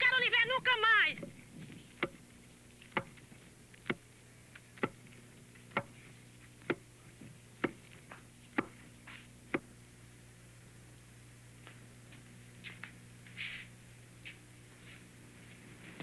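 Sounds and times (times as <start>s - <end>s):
steady low hum: 0.0s - 16.0s
wooden pestle pounding in mortar: 2.0s - 2.2s, 2.9s - 4.1s, 4.8s - 5.1s, 5.7s - 6.0s, 7.6s - 7.9s, 8.6s - 8.8s.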